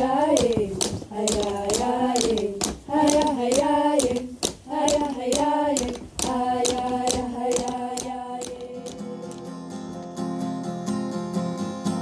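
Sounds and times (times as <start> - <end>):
person singing long notes: 0.0 - 9.6.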